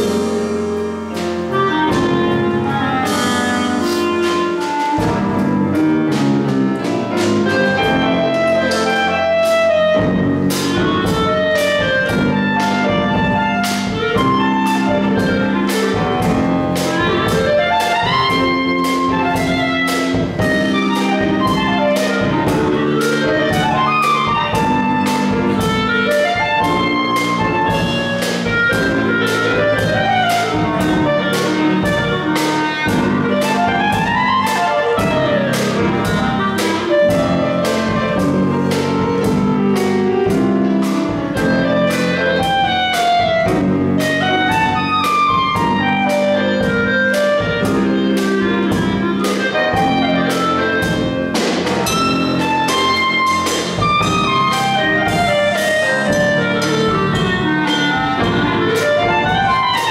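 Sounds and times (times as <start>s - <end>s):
jazz combo playing: 0.0s - 59.9s
clarinet runs: 1.4s - 59.9s
cymbal keeping beat: 47.4s - 59.9s.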